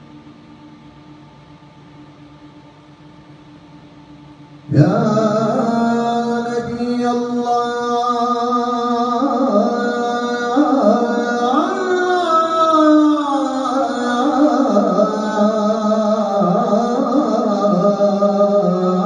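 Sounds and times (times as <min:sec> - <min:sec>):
man chanting into a microphone: 0:04.7 - 0:19.0.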